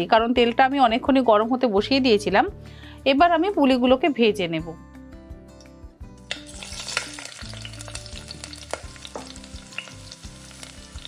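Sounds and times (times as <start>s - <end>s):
dumplings sizzling in hot oil: 6.2s - 11.0s.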